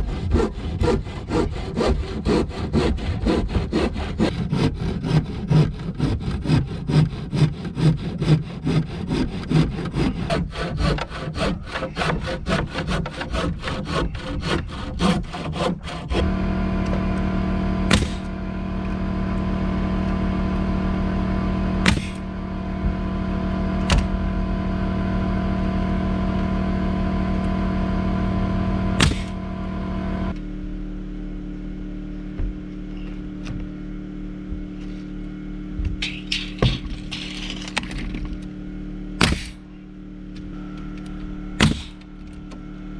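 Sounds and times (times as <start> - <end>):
handsaw cutting wood: 0.0 - 16.3, 17.9 - 18.3, 21.8 - 22.3, 29.0 - 29.4, 41.6 - 42.0
machine hum: 0.0 - 42.9.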